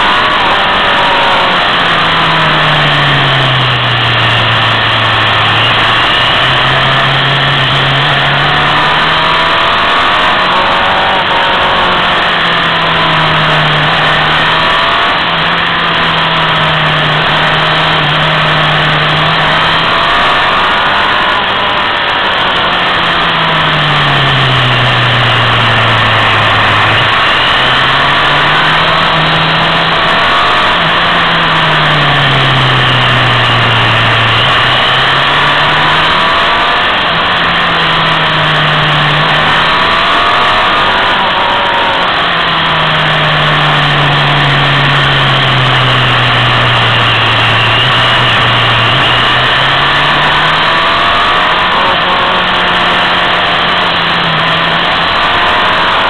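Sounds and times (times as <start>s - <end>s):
motorcycle engine accelerating: 0.0s - 56.0s.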